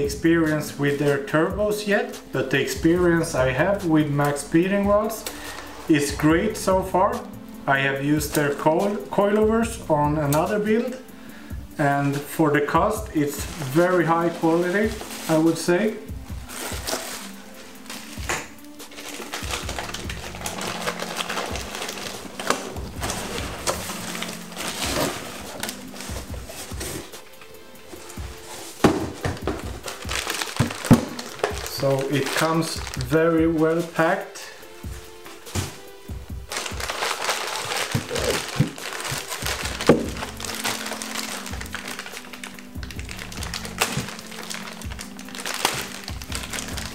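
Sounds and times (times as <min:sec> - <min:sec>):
soft background music: 0:00.0 - 0:46.9
cardboard and plastic rustling: 0:12.0 - 0:33.2, 0:35.3 - 0:46.9
plastic bag crinkling: 0:13.1 - 0:15.7, 0:16.4 - 0:27.1, 0:27.9 - 0:33.2, 0:36.5 - 0:46.9.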